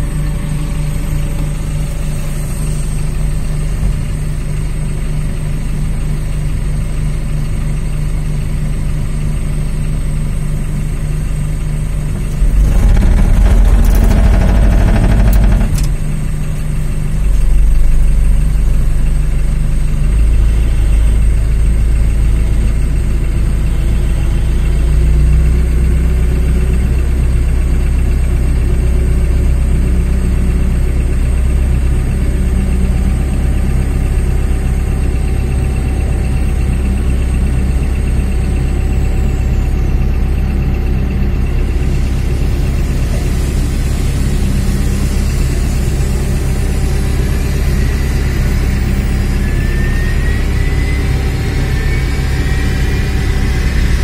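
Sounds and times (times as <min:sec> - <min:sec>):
tow tractor engine running: 0:00.0 - 0:54.0
thin high whine: 0:12.2 - 0:16.0.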